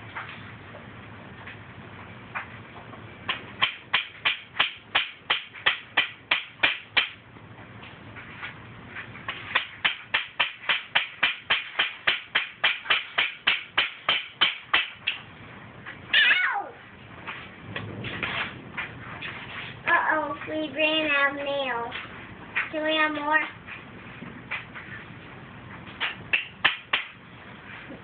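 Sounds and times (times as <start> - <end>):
child's falling cry: 16.2 - 16.8.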